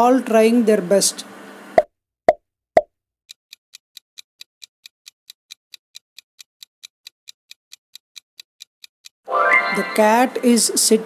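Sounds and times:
rapid clock-like ticking: 3.3s - 9.2s.

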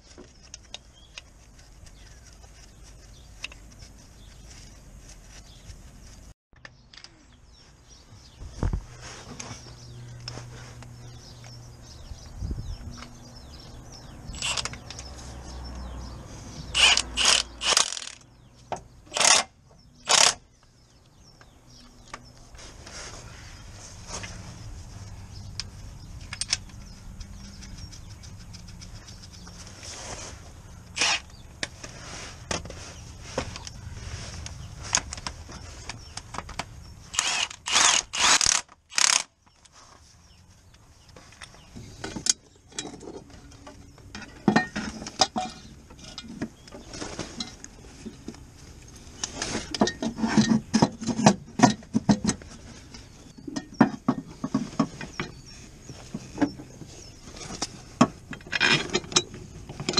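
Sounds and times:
tools and metal parts clinking: 14.3s - 15.0s, 42.0s - 46.4s, 58.3s - 59.9s
cordless power tool on bolt: 14.4s - 14.8s, 16.8s - 18.2s, 19.1s - 20.4s, 31.0s - 31.3s, 37.1s - 39.3s
rattling bursts: 16.7s - 18.3s, 37.1s - 39.3s.

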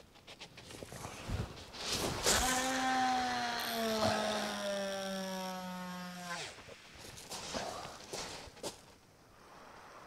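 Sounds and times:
fishing reel line whine: 2.4s - 6.7s.

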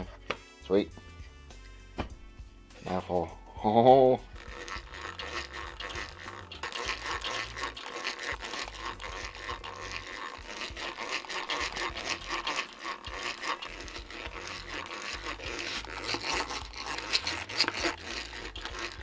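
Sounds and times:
saw cutting through plywood: 4.4s - 19.0s.

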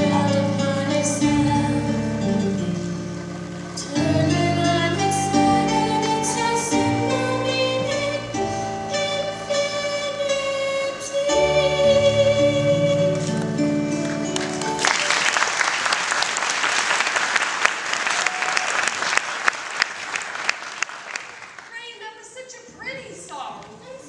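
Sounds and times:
girl singing: 0.0s - 2.4s, 3.8s - 13.4s
audience applauding: 14.0s - 21.8s.

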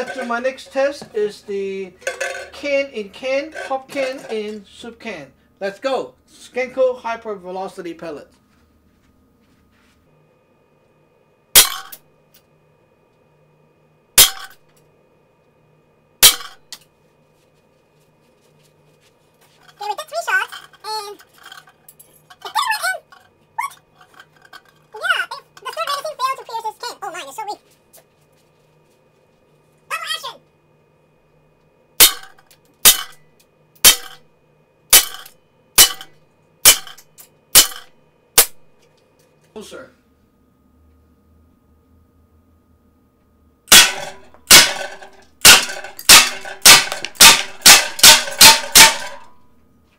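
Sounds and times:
air pistol shots cracking: 43.7s - 49.3s.

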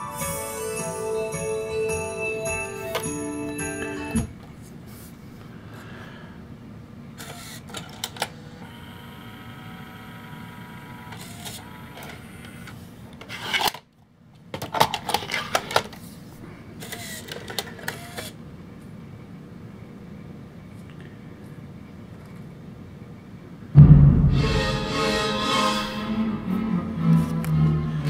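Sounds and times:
cd motor whine: 8.2s - 12.8s.

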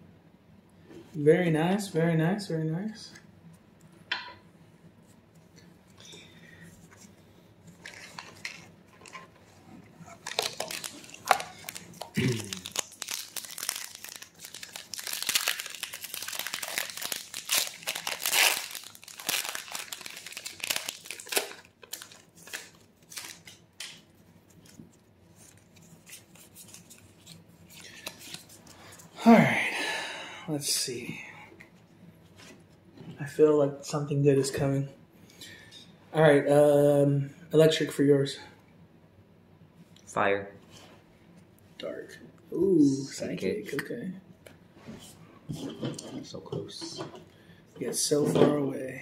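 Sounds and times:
foil wrapper tearing and crinkling: 10.2s - 24.0s.

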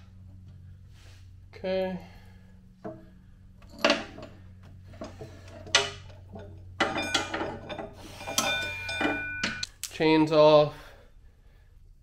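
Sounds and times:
metal chain clinking and rattling: 3.6s - 9.7s.

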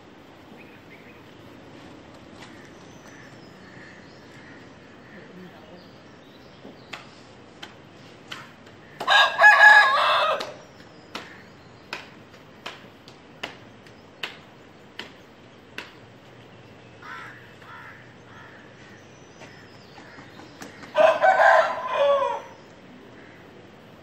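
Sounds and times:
rooster crowing: 9.0s - 10.7s, 20.9s - 22.6s.

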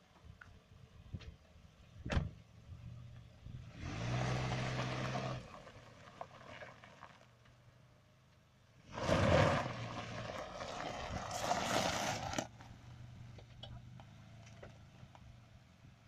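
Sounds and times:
tyres crunching on gravel: 3.9s - 7.6s, 8.8s - 15.4s.

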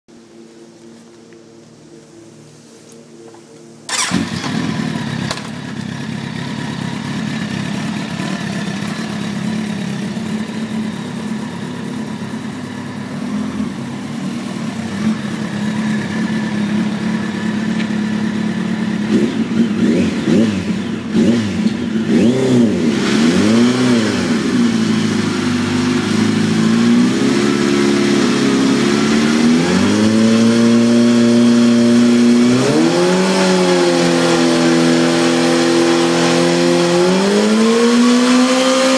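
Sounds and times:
motorcycle engine idling and revving: 3.6s - 38.9s.

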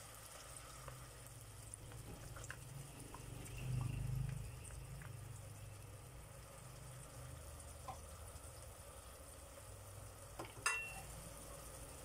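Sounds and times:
liquid pouring: 0.0s - 8.6s
oil crackling in a pot: 0.0s - 12.0s.

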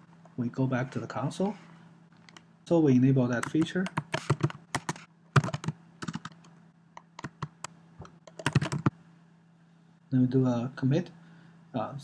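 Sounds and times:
typing on computer keyboard: 3.4s - 7.6s, 8.2s - 8.9s.

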